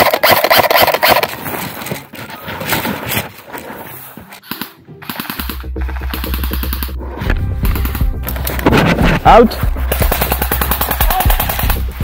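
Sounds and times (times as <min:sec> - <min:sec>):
airsoft rifle firing: 0:00.0 - 0:01.3, 0:04.4 - 0:06.9, 0:09.9 - 0:12.0.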